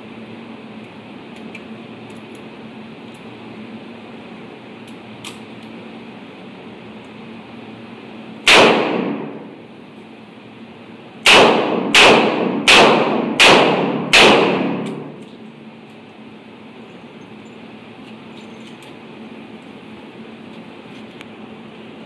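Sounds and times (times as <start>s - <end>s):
revolver shots indoors: 8.4s - 9.6s, 11.2s - 15.4s.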